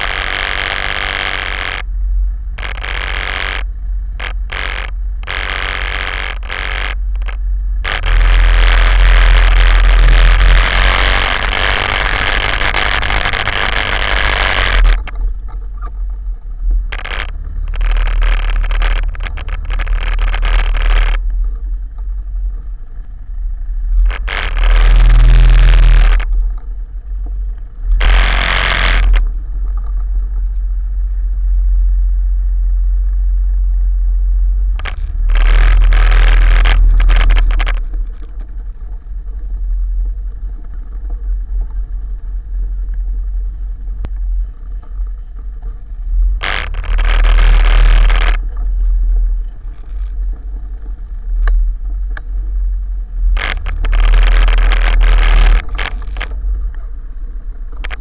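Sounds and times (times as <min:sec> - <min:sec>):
quad bike engine rumbling: 0:00.0 - 0:58.0
bursts of rushing noise: 0:04.2 - 0:15.2, 0:34.8 - 0:37.9.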